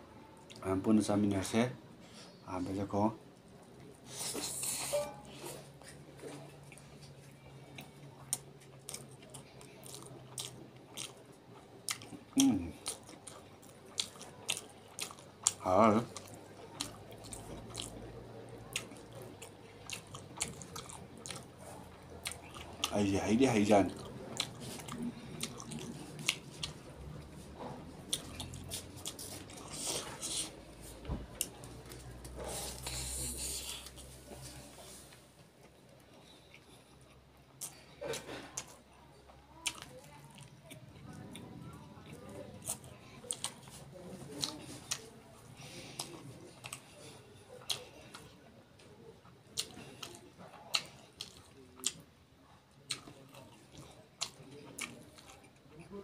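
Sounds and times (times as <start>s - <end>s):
chewing with wet mouth smacks: 5.8s - 30.7s, 35.6s - 39.0s, 39.6s - 52.1s, 52.9s - 56.0s.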